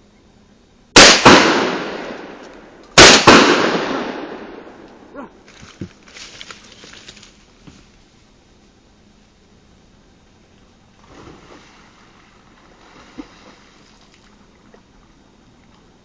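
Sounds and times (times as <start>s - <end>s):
shotgun shots: 1.0s - 5.1s.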